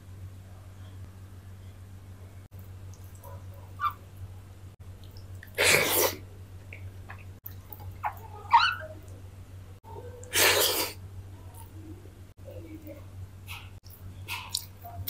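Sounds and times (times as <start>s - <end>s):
steady low hum: 0.0s - 10.3s.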